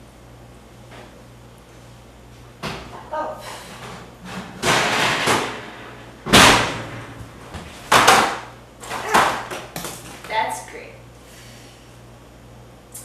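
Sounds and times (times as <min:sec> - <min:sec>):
kitchen items banging and knocking: 0:03.8 - 0:10.3.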